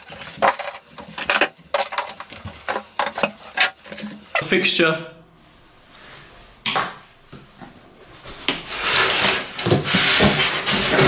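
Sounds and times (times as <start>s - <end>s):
plastic rubbing against foam: 8.2s - 11.0s.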